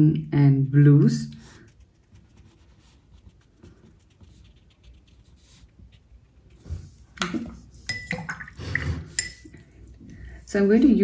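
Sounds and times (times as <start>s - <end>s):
paintbrush scratching on paper: 1.4s - 7.9s.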